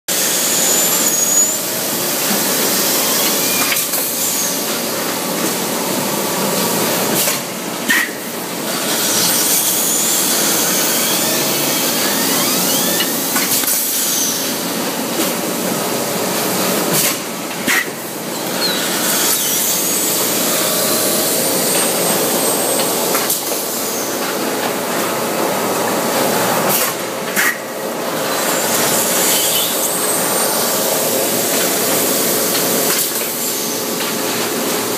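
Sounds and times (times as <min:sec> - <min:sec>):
machine running loudly: 0:00.1 - 0:34.9.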